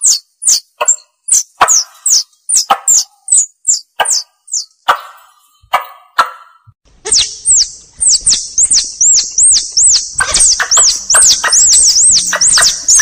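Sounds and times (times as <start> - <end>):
squirrel chirping calls: 0.0 - 13.0.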